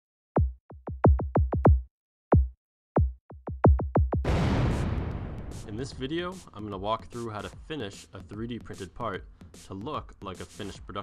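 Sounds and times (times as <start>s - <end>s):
drum-machine hits dropping in pitch: 2.4s - 6.7s.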